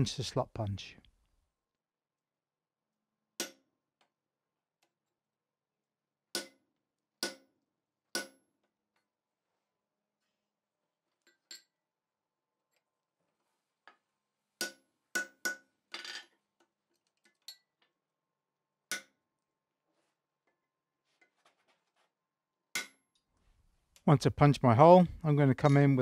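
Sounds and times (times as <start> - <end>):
faint metal taps and clinks: 11.2 - 11.8, 15.9 - 18.0.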